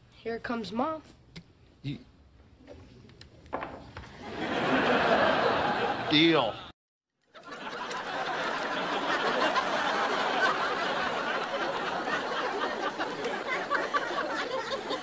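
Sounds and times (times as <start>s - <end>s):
studio audience laughing: 4.1s - 6.4s, 7.3s - 15.0s.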